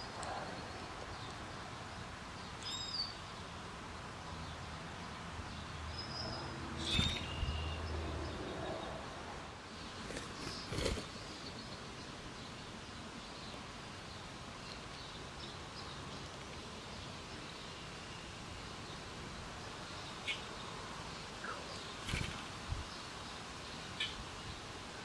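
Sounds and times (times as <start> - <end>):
faint bird chirps: 2.5 - 3.4, 6.0 - 9.0, 20.1 - 20.7, 21.3 - 22.5
short bird chirp: 6.8 - 7.8
woodpecker wing flutter and knock: 10.0 - 11.1, 22.0 - 22.5.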